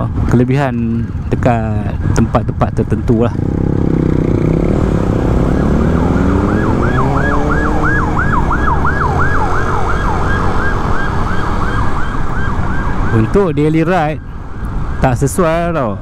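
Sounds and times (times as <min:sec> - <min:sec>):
road and wind noise: 0:00.0 - 0:16.0
siren yelping: 0:04.3 - 0:15.5.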